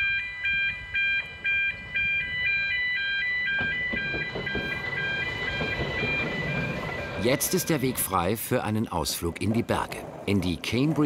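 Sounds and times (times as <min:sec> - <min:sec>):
electronic multi-tone alarm: 0:00.0 - 0:08.3.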